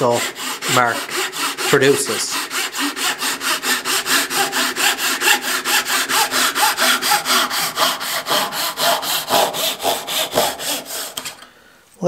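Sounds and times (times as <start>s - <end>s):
hand saw cutting wood: 0.0s - 11.5s.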